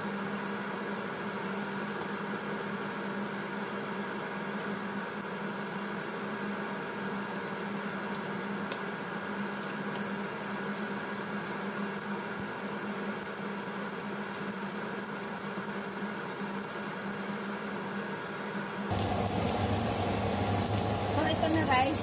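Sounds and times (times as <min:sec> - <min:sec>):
meat sizzling on a grill: 0:11.9 - 0:22.0
deep hum: 0:18.9 - 0:22.0
motor hum: 0:18.9 - 0:22.0.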